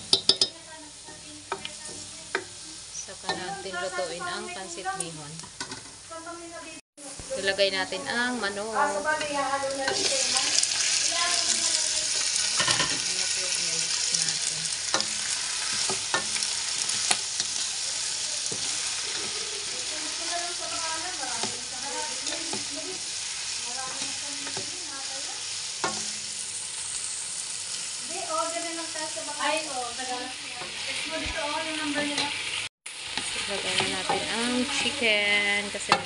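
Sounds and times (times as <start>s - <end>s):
chicken sizzling in hot oil: 0.0s - 36.0s
ladle scraping a pan: 14.9s - 24.8s.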